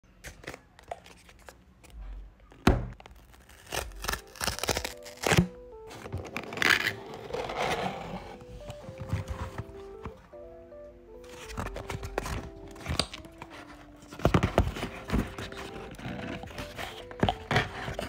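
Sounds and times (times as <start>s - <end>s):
soft lofi music: 0.2s - 18.0s
tear strip ripping: 3.1s - 5.5s.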